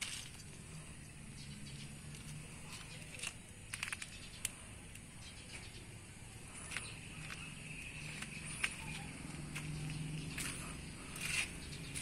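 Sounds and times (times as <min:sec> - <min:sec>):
faint bird chirps: 0:04.0 - 0:12.0.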